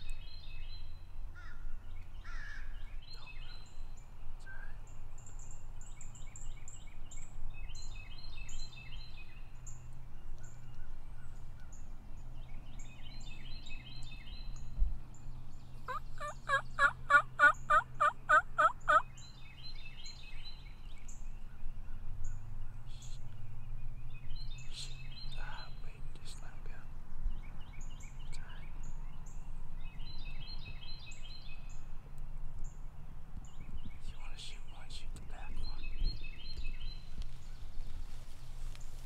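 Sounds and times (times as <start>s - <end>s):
songbirds chirping faintly: 0.0s - 39.0s
wild turkey yelping: 15.9s - 19.1s.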